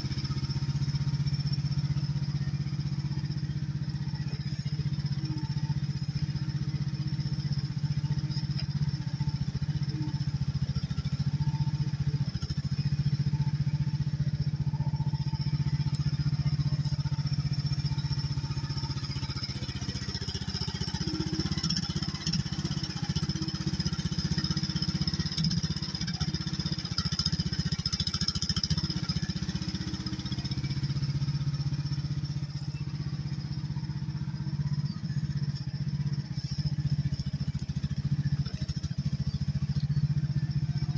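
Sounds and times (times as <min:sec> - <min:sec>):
excavator engine running: 0:00.0 - 0:40.9.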